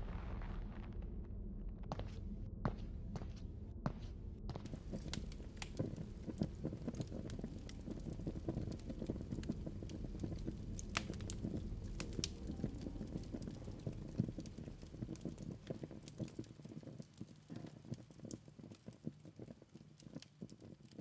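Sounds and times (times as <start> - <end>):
low steady rumble: 0.0 - 16.4
crackling and popping: 4.5 - 21.0.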